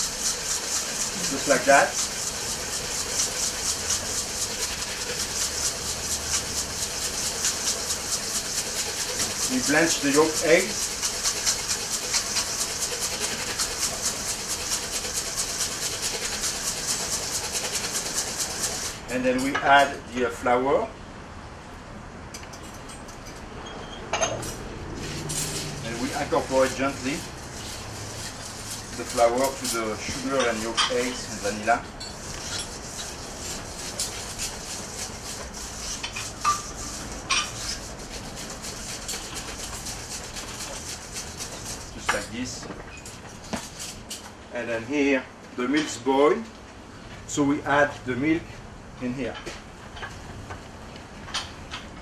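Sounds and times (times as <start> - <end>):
whisk beating in metal bowl: 0.0 - 19.9, 25.0 - 42.6.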